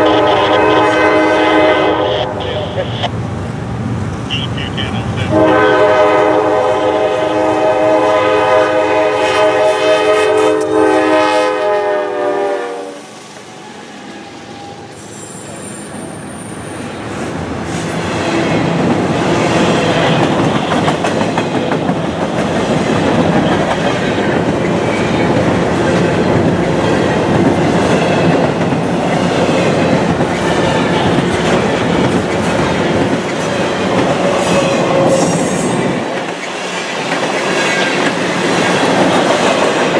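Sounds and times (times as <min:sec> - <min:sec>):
locomotive air horn blast: 0:00.0 - 0:03.1, 0:04.3 - 0:13.0
train wheels rumbling and clattering: 0:15.0 - 0:39.9.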